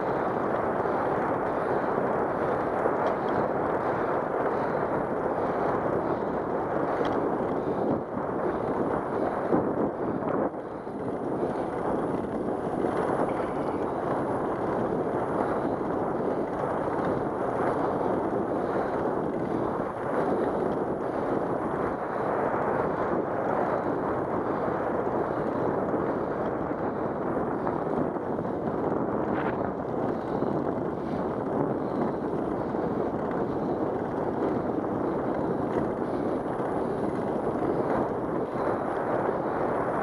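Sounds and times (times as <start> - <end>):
wind rushing on microphone: 0.0 - 40.0.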